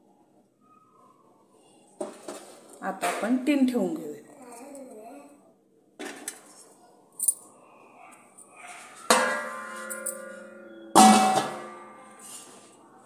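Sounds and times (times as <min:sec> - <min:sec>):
metal lid clanging onto pot: 0:09.1 - 0:12.0.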